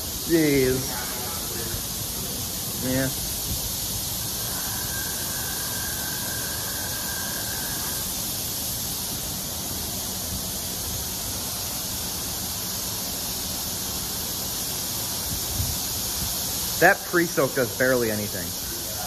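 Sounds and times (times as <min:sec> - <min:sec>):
faint high whine: 0:00.0 - 0:10.0
hiss of pressurized spray: 0:00.0 - 0:19.0.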